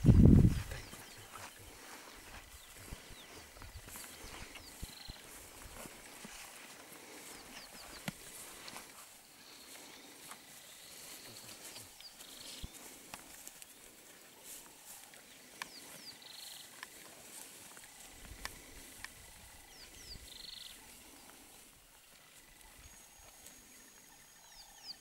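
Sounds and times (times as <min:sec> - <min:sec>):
footsteps through dry grass: 0:00.0 - 0:24.7
bird chirping: 0:00.5 - 0:06.4, 0:07.1 - 0:13.0, 0:14.7 - 0:17.0, 0:17.9 - 0:21.6, 0:22.3 - 0:25.0.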